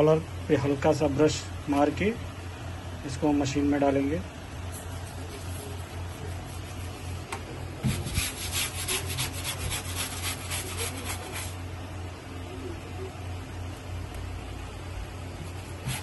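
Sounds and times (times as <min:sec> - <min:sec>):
scrub brush scrubbing fabric: 0:04.9 - 0:11.6, 0:15.4 - 0:16.0.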